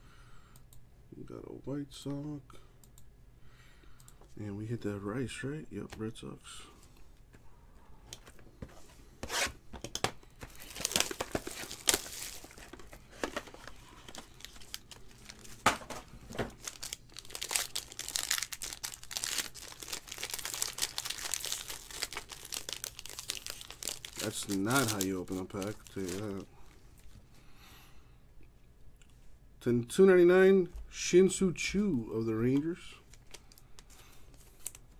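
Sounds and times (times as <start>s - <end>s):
foil wrapper tearing and crinkling: 10.4s - 15.7s, 16.6s - 26.4s.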